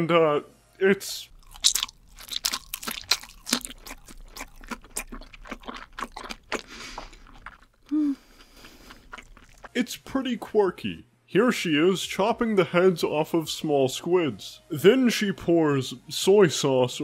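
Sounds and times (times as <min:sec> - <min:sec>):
woman chewing crunchy food: 0:01.3 - 0:09.8.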